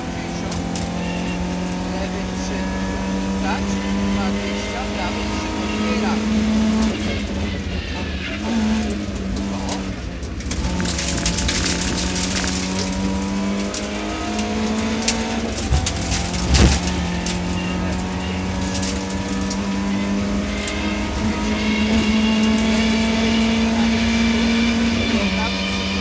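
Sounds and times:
car engine revving high: 0.0s - 26.0s
heavy thump: 15.7s - 17.1s.

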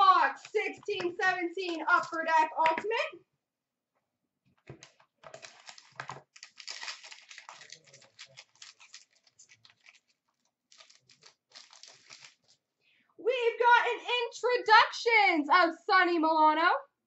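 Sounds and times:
plastic wrapping crinkling: 4.7s - 12.6s.

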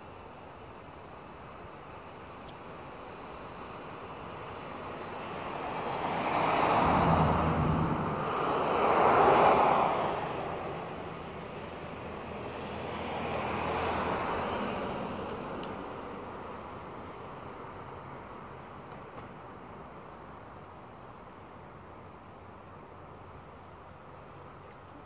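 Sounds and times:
road traffic passing: 0.2s - 19.7s.

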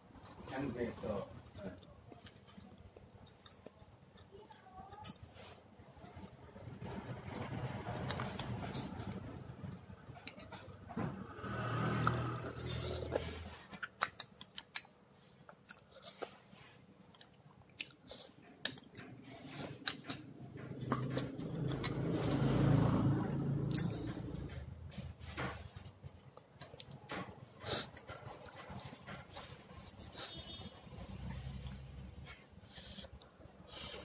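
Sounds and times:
person chewing: 1.7s - 4.6s, 11.6s - 34.0s.

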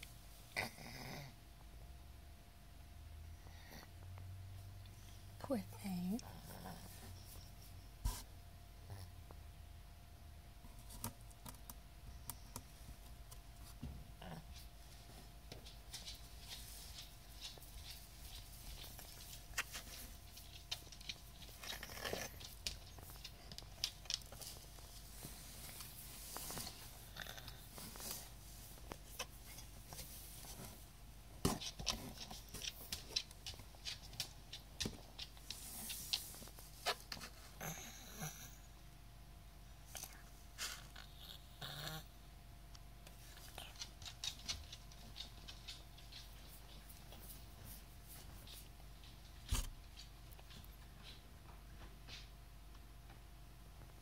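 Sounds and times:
cat snuffle: 0.5s - 1.4s, 16.0s - 30.8s, 35.4s - 38.8s, 39.9s - 42.2s.

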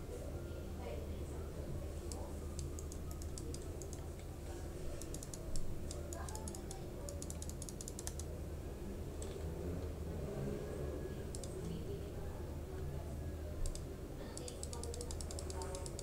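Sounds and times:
low electrical hum: 0.0s - 16.0s
computer keyboard keys clicking: 2.6s - 4.3s, 5.0s - 8.3s, 11.3s - 11.8s, 13.6s - 16.0s.

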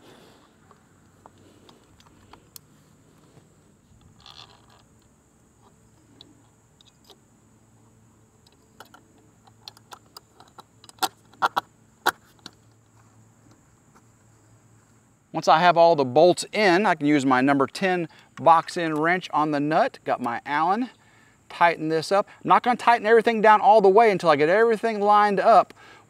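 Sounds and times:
small metal clicks and taps: 8.4s - 11.6s.

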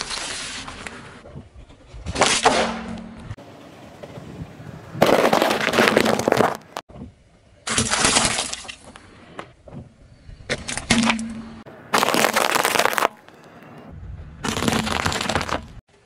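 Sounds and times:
car tyre crushing crunchy objects: 4.9s - 6.9s, 7.6s - 9.1s, 10.5s - 13.6s, 14.4s - 15.8s.

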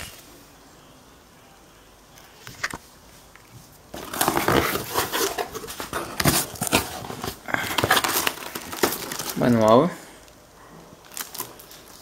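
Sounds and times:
plastic and cardboard rustling: 3.6s - 9.9s, 11.0s - 12.0s.

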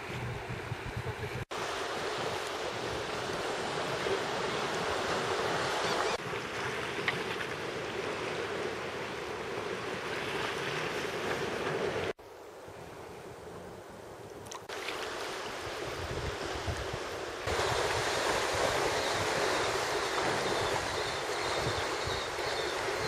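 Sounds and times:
wind noise on microphone: 0.0s - 1.5s, 15.6s - 23.0s
sea water lapping: 0.0s - 12.2s, 14.5s - 23.0s.

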